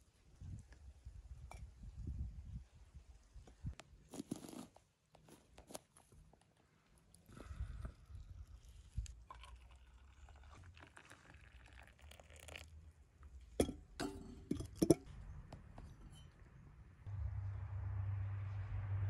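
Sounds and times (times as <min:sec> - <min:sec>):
tea pouring into metal mug: 0:08.2 - 0:12.8.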